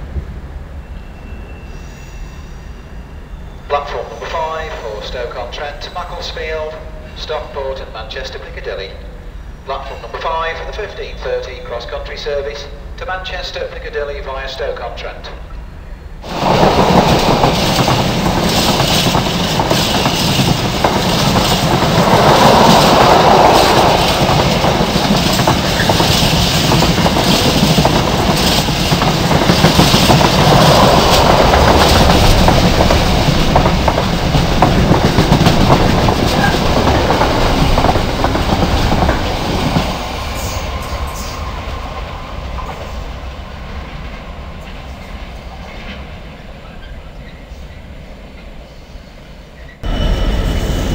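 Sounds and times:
train wheels clattering over track: 16.2s - 47.7s.

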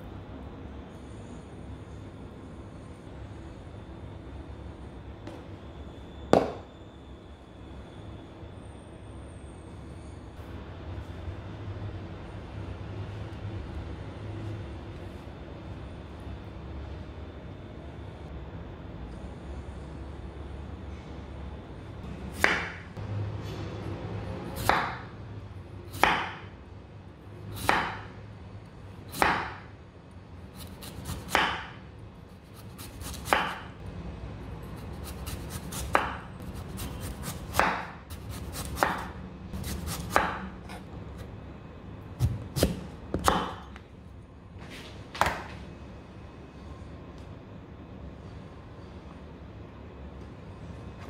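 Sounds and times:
knife chopping on wooden board: 30.8s - 31.7s, 32.9s - 33.6s, 35.3s - 40.8s, 42.2s - 43.7s.

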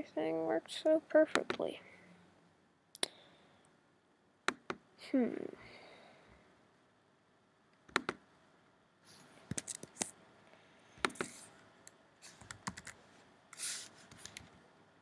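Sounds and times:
keyboard and mouse clicks: 1.3s - 1.7s, 7.8s - 8.2s, 9.5s - 10.1s, 11.0s - 11.5s, 12.3s - 13.0s, 14.1s - 14.5s
short hiss: 13.6s - 14.0s.

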